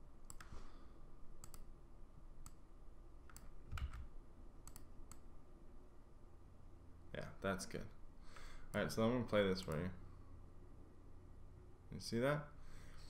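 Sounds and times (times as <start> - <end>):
mouse and keyboard clicks: 0.2 - 0.6, 1.4 - 1.7, 3.3 - 5.3.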